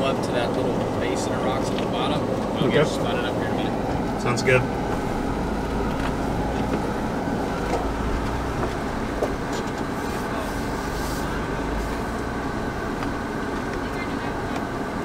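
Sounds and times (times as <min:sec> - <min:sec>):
engine low rumble from inside cabin: 0:00.0 - 0:15.0.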